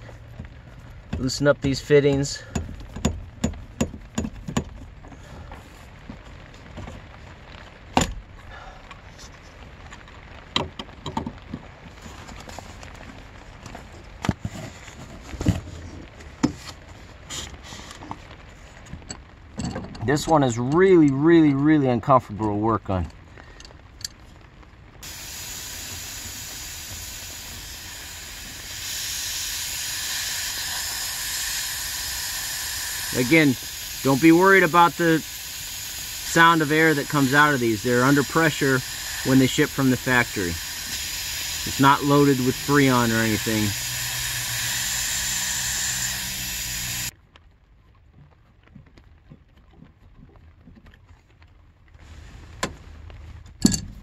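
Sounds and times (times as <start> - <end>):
air hissing from fitting: 25.0 - 47.1.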